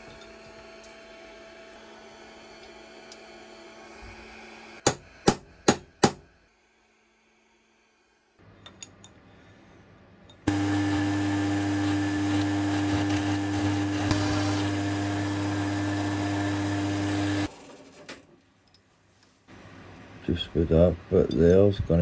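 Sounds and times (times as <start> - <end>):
drill boring into metal: 10.5 - 17.5
milling machine motor hum: 10.5 - 17.5.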